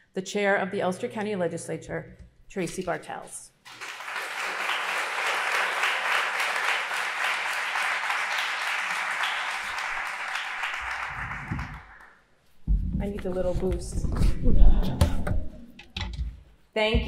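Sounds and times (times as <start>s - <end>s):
audience applauding: 3.7s - 12.2s.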